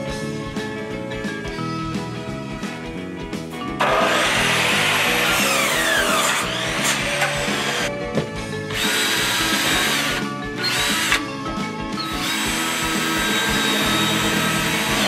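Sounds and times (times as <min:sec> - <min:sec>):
background music: 0:00.0 - 0:15.0
cordless drill motor whining: 0:03.8 - 0:07.9, 0:08.7 - 0:11.3, 0:12.0 - 0:15.0.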